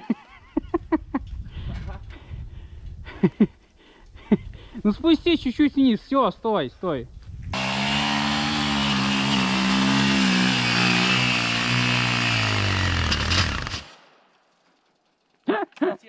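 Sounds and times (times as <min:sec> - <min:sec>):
motorcycle engine at high revs: 0:07.6 - 0:13.9.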